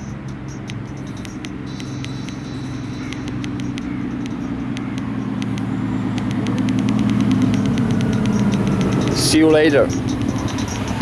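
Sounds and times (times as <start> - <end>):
car engine hum: 0.0 - 11.0
key fob button clicks: 3.0 - 11.0.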